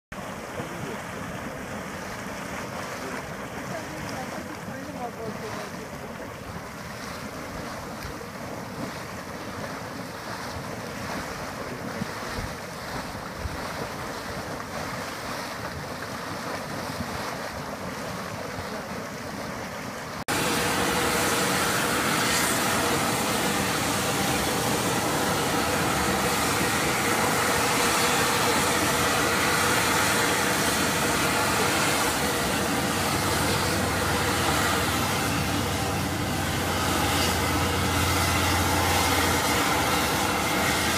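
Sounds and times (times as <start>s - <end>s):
mud pot churning: 0.1s - 40.9s
steam hissing from vent: 20.3s - 40.9s.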